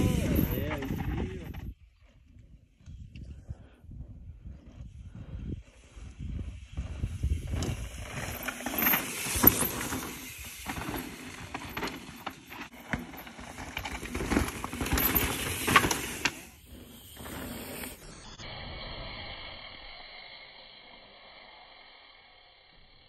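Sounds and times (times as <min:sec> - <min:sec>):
bike tyres crunching on dirt: 0:00.0 - 0:18.3
bike rattling knocks: 0:08.8 - 0:16.5.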